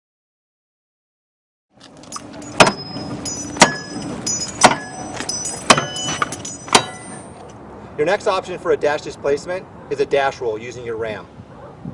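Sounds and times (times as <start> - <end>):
axe striking metal bar: 2.1 - 7.5.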